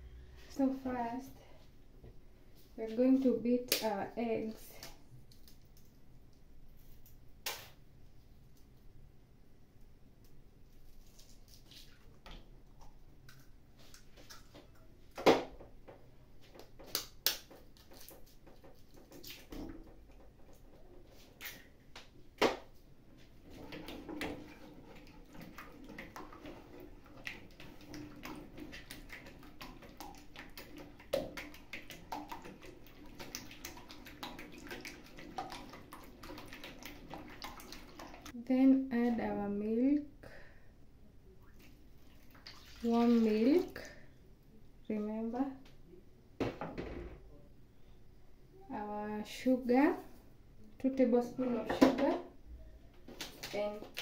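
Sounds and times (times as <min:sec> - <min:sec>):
wire whisk beating eggs: 0:23.4 - 0:38.4.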